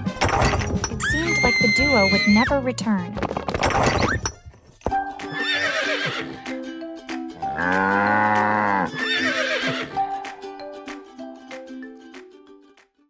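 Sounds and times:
background music: 0.0 - 13.0
horse whinnying: 1.0 - 2.5, 5.3 - 6.4, 7.5 - 10.0.

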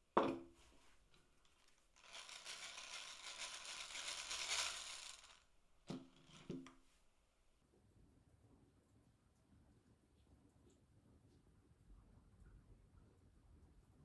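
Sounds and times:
wooden tool set down on table: 0.2 - 0.5
hand-crank gearing whirring: 2.0 - 5.4.

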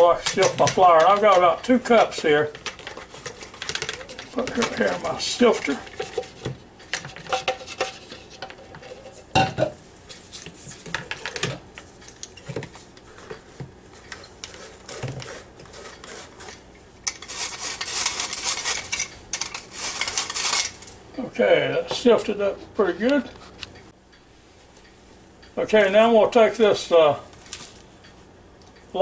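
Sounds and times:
flour sifter rasping: 0.0 - 8.3, 12.8 - 20.9.

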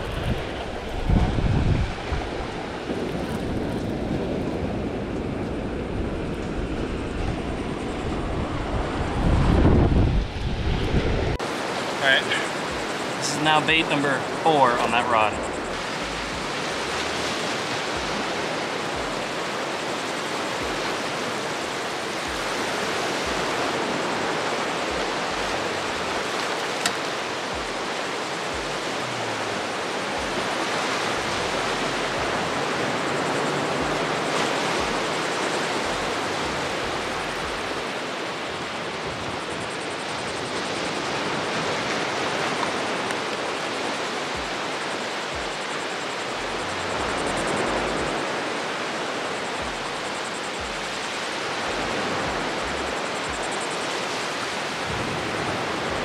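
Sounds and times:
ocean surf washing onto beach: 0.0 - 56.0.

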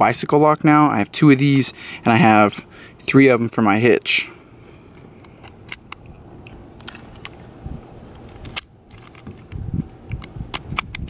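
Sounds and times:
padlock clicking in hands: 8.2 - 11.0.

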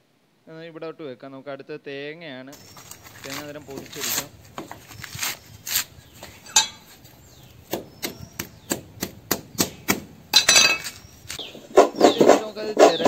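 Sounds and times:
machete striking coconut: 7.7 - 11.0.

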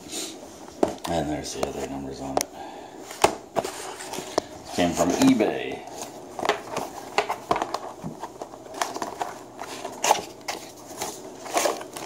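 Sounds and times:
cardboard flaps rustling: 3.1 - 12.0.

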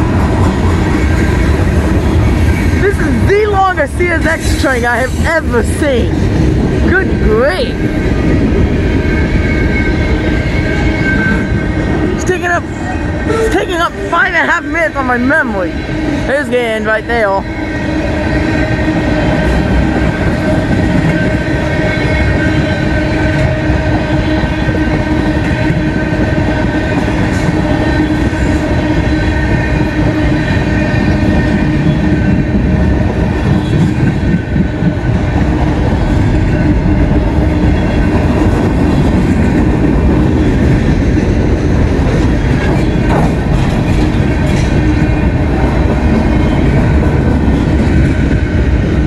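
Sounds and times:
freight train wheels on rails: 0.0 - 49.0
clatter over rail joints: 42.0 - 45.2.

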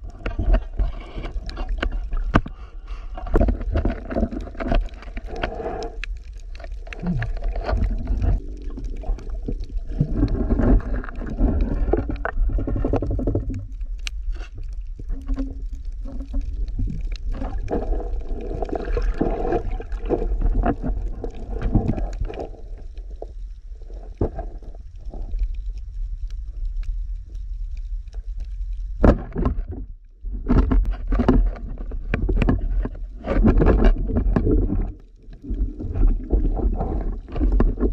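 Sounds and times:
underwater rumble of moving water: 0.0 - 37.9
water gurgling: 3.2 - 26.2, 28.4 - 37.9.

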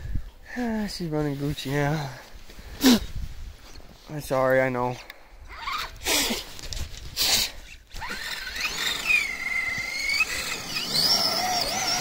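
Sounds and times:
churning snow: 6.1 - 12.0
electric motor whine: 7.9 - 12.0.

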